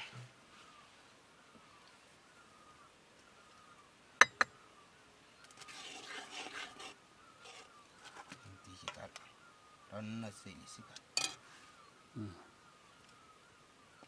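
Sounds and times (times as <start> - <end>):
spoon scraping in a pot: 5.6 - 7.7
metal spoon clinking: 11.2 - 11.4.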